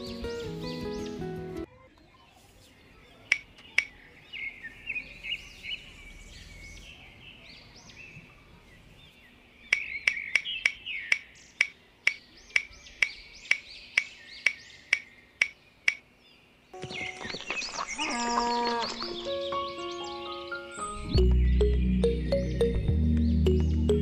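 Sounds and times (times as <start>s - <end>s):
small birds chirping: 0.0s - 24.0s
sharp clicks: 3.3s - 4.0s, 9.7s - 16.0s.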